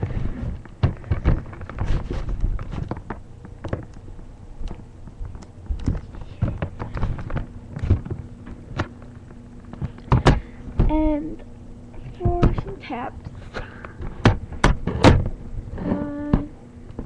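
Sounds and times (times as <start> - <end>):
handling noise on microphone: 0.0 - 3.2.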